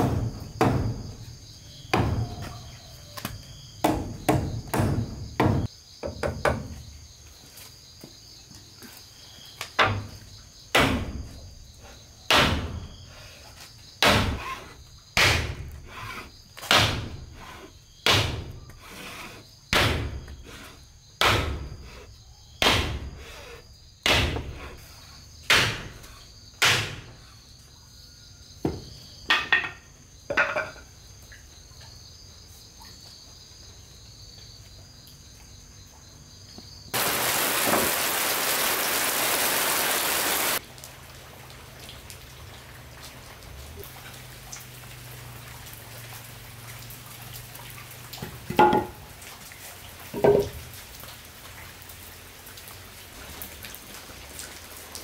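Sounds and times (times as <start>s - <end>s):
crickets chirping: 0.0s - 55.0s
rain hissing: 36.9s - 55.0s.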